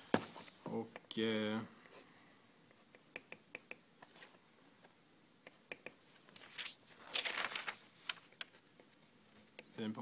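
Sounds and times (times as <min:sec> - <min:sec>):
faint clicks and taps: 0:02.7 - 0:06.0
soft paper rustle: 0:06.1 - 0:10.0.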